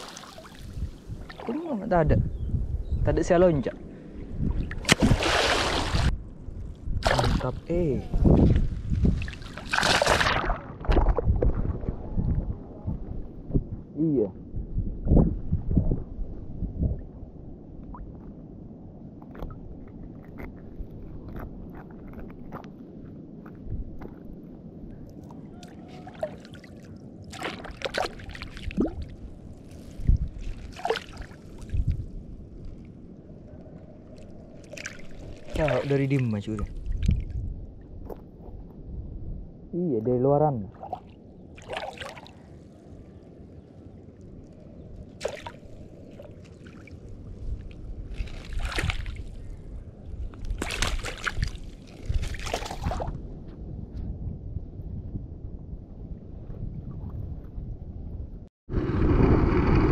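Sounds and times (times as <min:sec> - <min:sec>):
sea water sloshing and splashing: 0:00.0 - 0:01.8, 0:04.4 - 0:06.2, 0:07.0 - 0:12.1, 0:25.2 - 0:33.0, 0:33.6 - 0:37.4, 0:40.7 - 0:43.1, 0:44.3 - 0:53.2
wind on microphone: 0:00.0 - 0:59.9.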